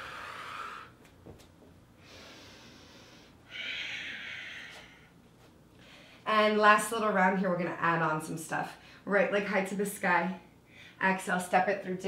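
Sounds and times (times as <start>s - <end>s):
woman breathing audibly: 0.0s - 1.1s, 2.0s - 6.3s.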